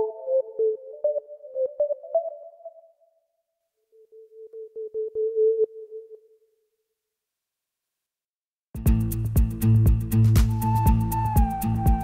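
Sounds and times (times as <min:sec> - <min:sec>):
synthetic whistle lead: 0:10.5 - 0:12.0.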